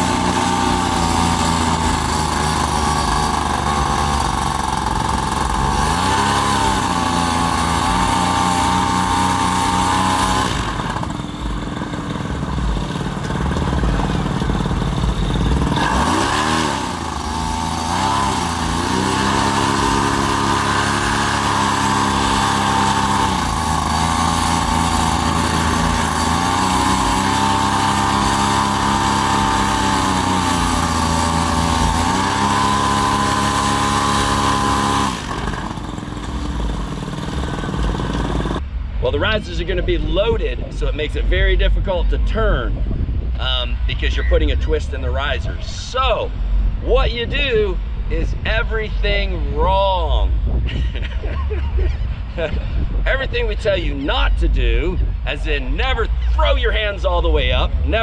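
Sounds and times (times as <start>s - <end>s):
paramotor engine running: 0.0s - 58.0s
wind rumble on microphone: 38.6s - 58.0s.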